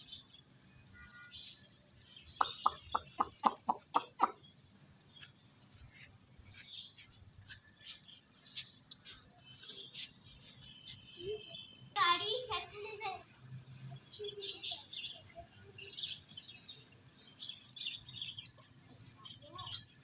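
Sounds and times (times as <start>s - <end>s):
chicken clucking: 2.4s - 4.4s.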